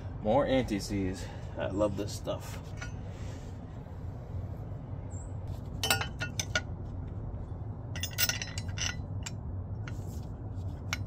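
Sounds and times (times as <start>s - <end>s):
low steady hum: 0.0s - 11.0s
light metal clinks: 5.8s - 6.6s, 8.0s - 9.4s.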